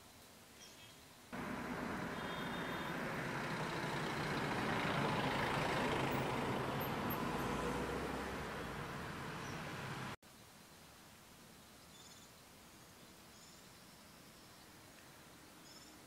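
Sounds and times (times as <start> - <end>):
heavy vehicle engine humming: 1.4 - 10.2.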